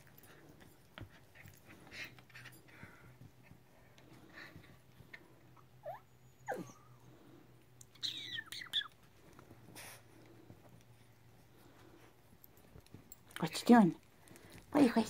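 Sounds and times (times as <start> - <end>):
faint low hum: 0.0 - 15.0
small dogs yipping and whining: 5.4 - 10.0.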